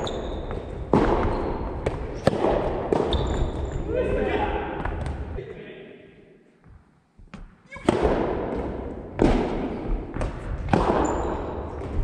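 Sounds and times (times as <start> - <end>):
shoe squeak: 0.0 - 2.2, 3.1 - 3.8, 11.0 - 11.5
rackets hitting ball: 0.0 - 3.9, 7.4 - 12.0.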